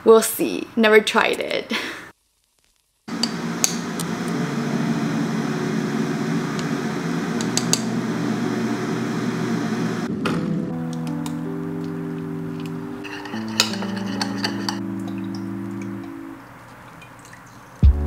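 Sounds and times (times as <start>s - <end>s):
electric kettle heating water: 3.1s - 10.1s, 13.0s - 17.3s
metal spoon clinking on tin: 13.0s - 14.8s.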